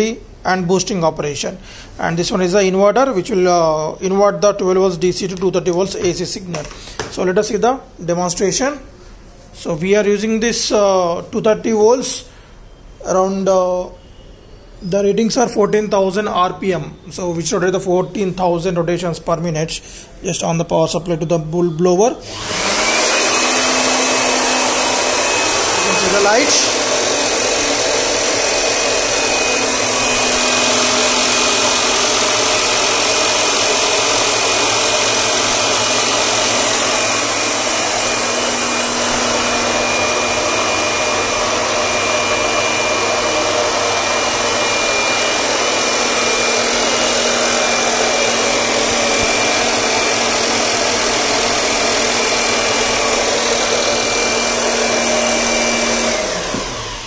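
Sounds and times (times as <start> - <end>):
electric air blower running: 22.2 - 57.0.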